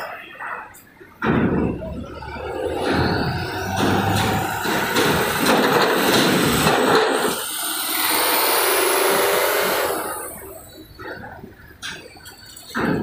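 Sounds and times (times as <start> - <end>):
truck driving over steel ramp: 1.0 - 13.0.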